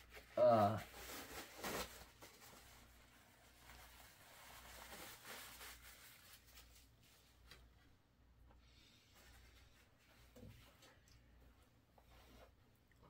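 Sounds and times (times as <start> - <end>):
faint soft rustles: 0.0 - 13.0.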